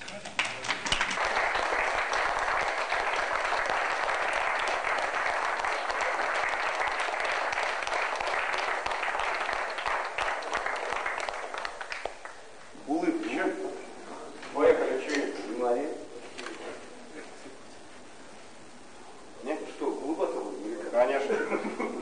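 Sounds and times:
people clapping: 0:00.0 - 0:12.6.

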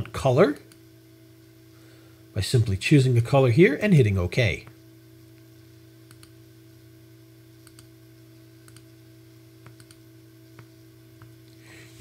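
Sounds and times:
steady low hum: 0:00.0 - 0:12.0
computer mouse clicks: 0:06.1 - 0:06.4, 0:07.6 - 0:07.9, 0:08.6 - 0:08.9, 0:09.6 - 0:10.0.

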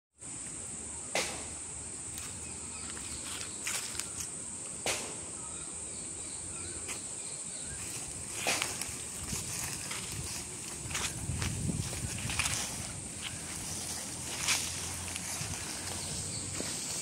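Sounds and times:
high-pitched insect drone: 0:00.2 - 0:17.0
footsteps crunching dry leaves: 0:02.1 - 0:04.3, 0:07.7 - 0:17.0.

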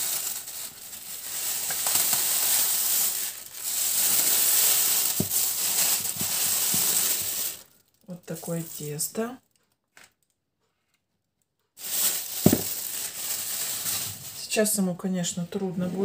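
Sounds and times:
plastic bag crinkling: 0:00.0 - 0:09.1, 0:11.8 - 0:14.5.

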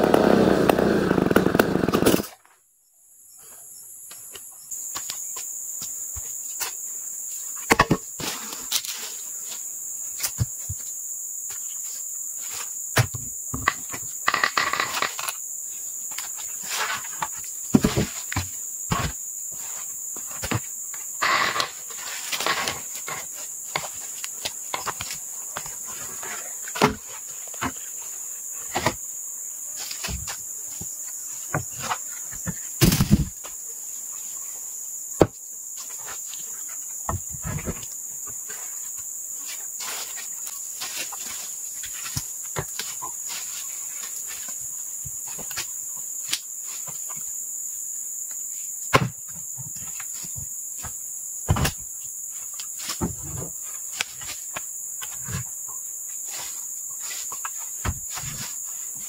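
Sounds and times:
high-pitched insect chorus: 0:00.1 - 0:59.0.

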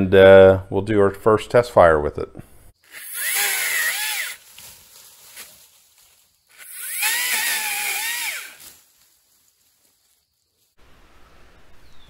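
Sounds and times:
electric pole saw whining: 0:02.8 - 0:04.4, 0:06.5 - 0:08.8.

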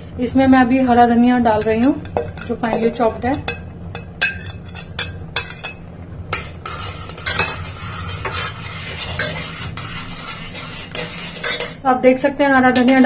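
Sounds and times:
low steady hum: 0:00.0 - 0:13.0
spoon clinking against pot: 0:01.6 - 0:05.8, 0:06.4 - 0:08.5, 0:11.0 - 0:11.8
spoon stirring thick stew: 0:06.4 - 0:11.8.

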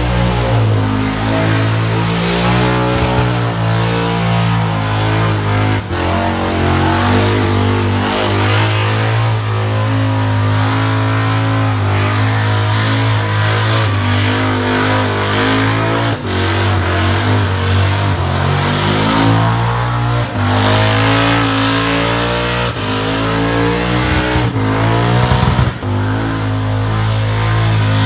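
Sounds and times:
car engine revving high: 0:00.0 - 0:28.0.

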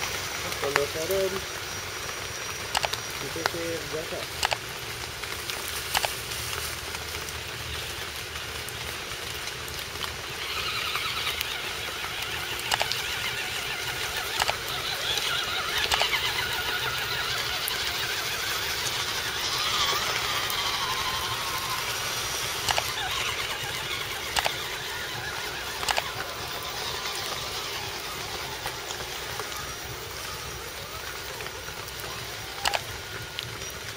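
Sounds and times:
electric motor and gears whining: 0:00.0 - 0:33.9
steady hiss: 0:00.0 - 0:33.9.

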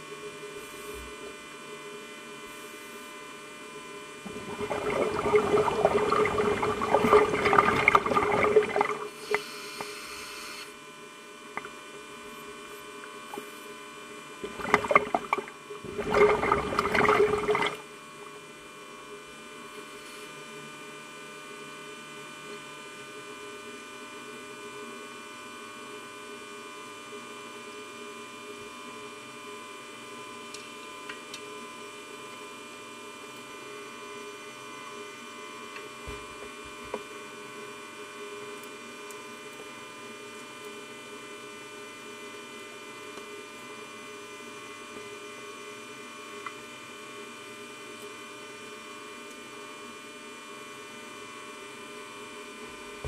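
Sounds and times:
electrical hum: 0:00.0 - 0:19.2.

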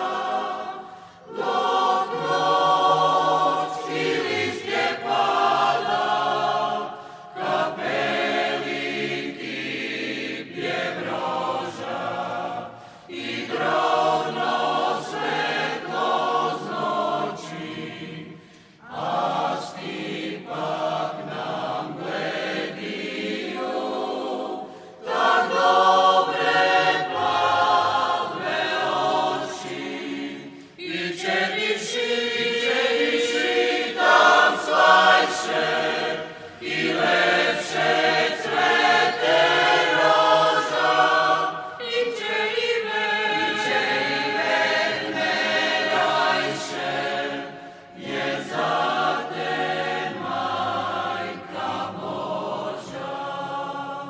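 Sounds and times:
choir singing slow song: 0:00.0 - 0:54.0.

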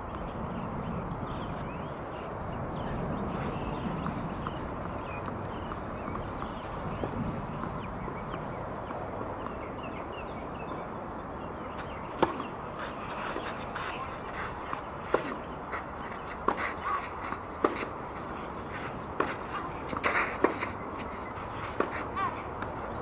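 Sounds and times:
tennis ball hits and bounces: 0:11.8 - 0:22.8.

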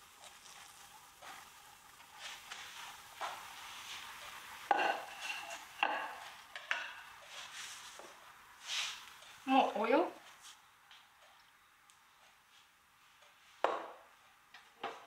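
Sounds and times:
faint steady hiss: 0:00.0 - 0:15.0
crockery knocking and clinking: 0:04.7 - 0:07.0, 0:13.6 - 0:14.0.

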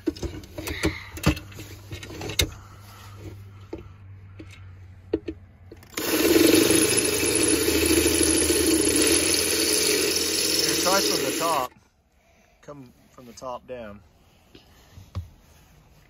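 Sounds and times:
cordless drill drilling metal: 0:05.9 - 0:11.7.

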